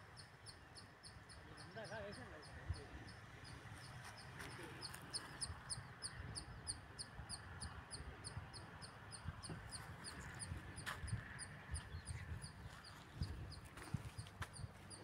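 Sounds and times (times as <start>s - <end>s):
small animal chirping: 0.0s - 15.0s.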